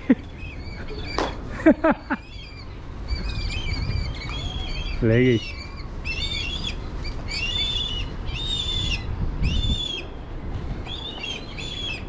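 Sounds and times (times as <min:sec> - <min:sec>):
low rumbling noise: 0:00.0 - 0:12.0
kites whistled calls: 0:02.1 - 0:10.2.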